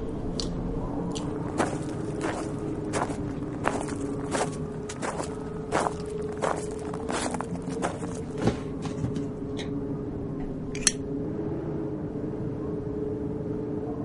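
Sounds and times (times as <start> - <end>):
steady low hum: 0.0 - 14.0
footsteps on rubbish: 1.2 - 9.3.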